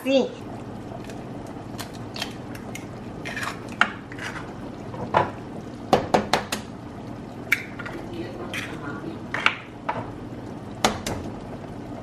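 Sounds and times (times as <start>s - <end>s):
broth bubbling: 0.0s - 12.0s
eggshells cracking: 1.0s - 3.8s.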